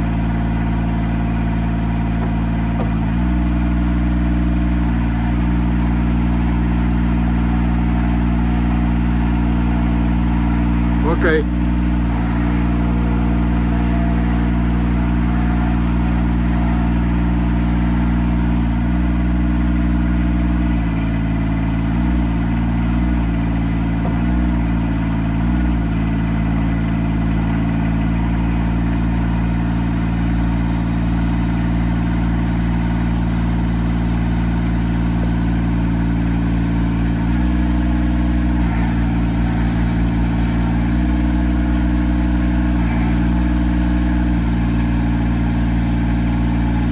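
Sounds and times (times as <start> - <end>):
lift engine running: 0.0 - 46.9.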